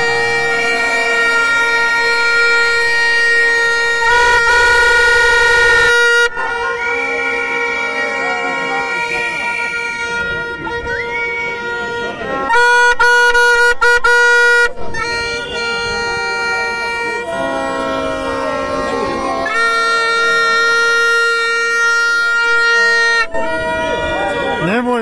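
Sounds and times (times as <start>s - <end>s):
crowd chatter: 0.0s - 25.0s
plastic horns blaring: 0.0s - 25.0s.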